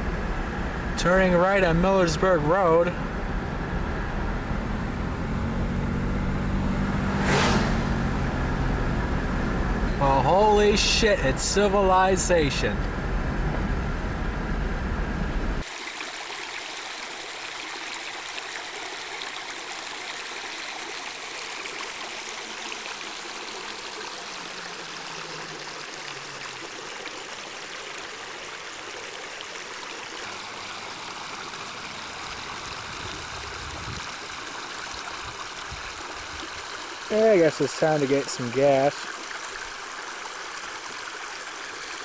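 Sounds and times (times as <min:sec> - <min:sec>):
car road rumble: 0:00.0 - 0:15.6
stream flowing over stones: 0:10.0 - 0:12.8, 0:15.6 - 0:42.0.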